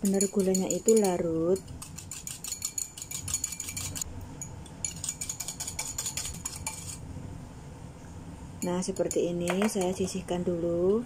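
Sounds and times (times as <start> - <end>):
whisk clicking against bowl: 0.0 - 4.0, 4.9 - 6.9.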